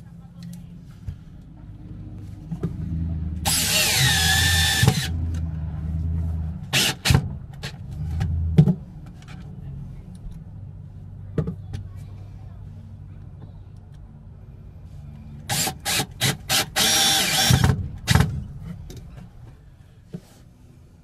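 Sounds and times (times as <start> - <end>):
cordless drill driving screws: 3.5 - 5.1, 6.8 - 7.1, 15.5 - 17.8.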